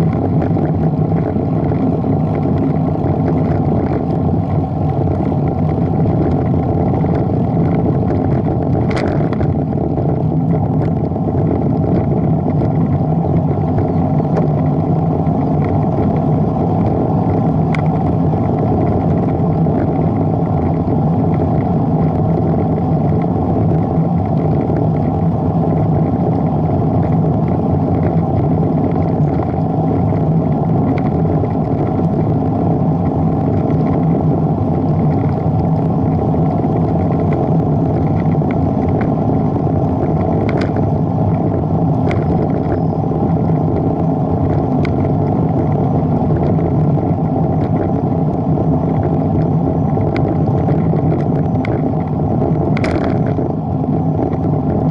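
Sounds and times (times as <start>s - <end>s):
bicycle tyre and road noise: 0.0s - 54.9s
wind buffeting microphone: 0.0s - 54.9s.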